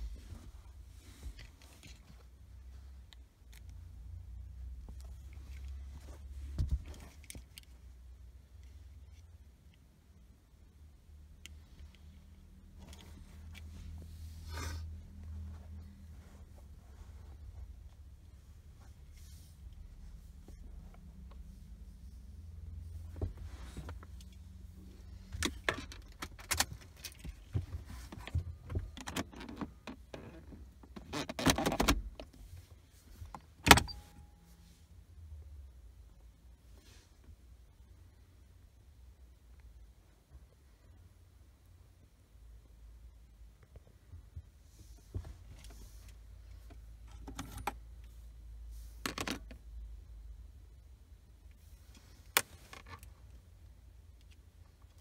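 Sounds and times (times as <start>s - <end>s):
console cover popping open: 33.6s - 34.1s.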